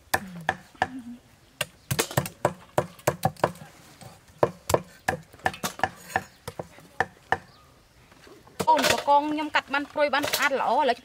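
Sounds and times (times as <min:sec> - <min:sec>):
cleavers chopping on wooden block: 0:00.1 - 0:01.0, 0:01.6 - 0:03.7, 0:04.3 - 0:07.6.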